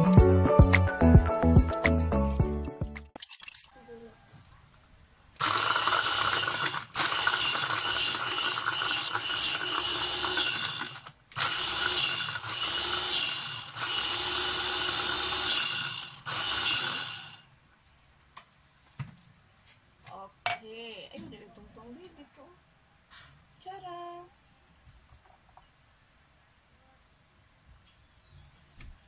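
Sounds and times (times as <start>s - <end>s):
electric food chopper motor: 5.4s - 17.4s.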